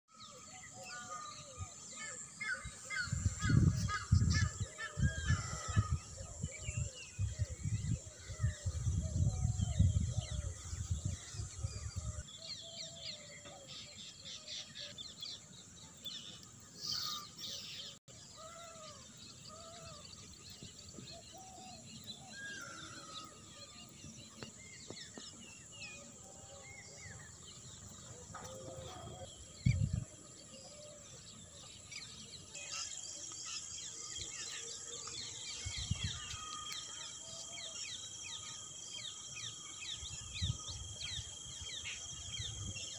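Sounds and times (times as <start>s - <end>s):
birds calling: 0.1s - 42.9s
low rumbling on microphone: 3.1s - 12.2s, 27.3s - 30.4s.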